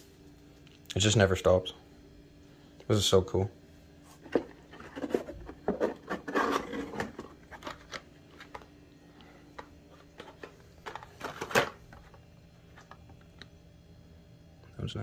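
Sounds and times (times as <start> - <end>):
packaging rustling: 4.2 - 8.7.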